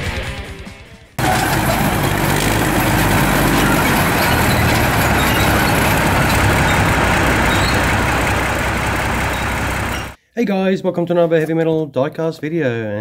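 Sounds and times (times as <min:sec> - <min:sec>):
diesel engine low rumble: 0:01.2 - 0:10.2
tracked vehicle driving: 0:01.2 - 0:10.2.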